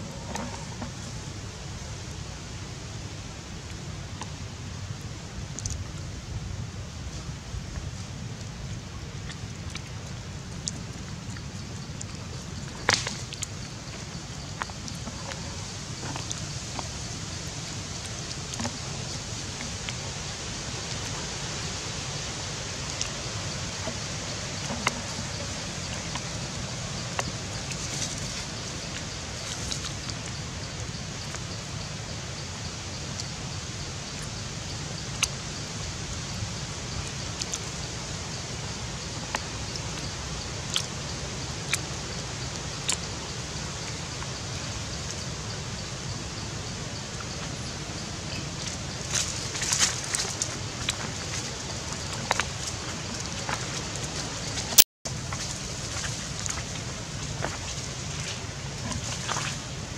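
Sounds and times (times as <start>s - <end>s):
steady outdoor background hiss: 0.0s - 59.9s.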